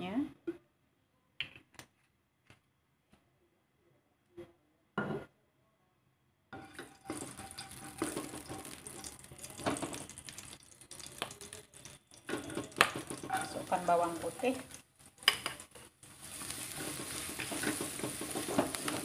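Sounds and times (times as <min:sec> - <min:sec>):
oil sizzling in a wok: 0:06.6 - 0:19.0
spatula scraping a wok: 0:06.6 - 0:19.0.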